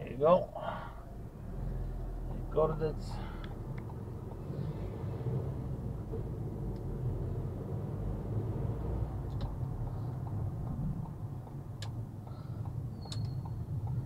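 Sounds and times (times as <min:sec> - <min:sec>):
car engine and tyre rumble: 0:00.0 - 0:14.0
light clicks: 0:12.6 - 0:14.0.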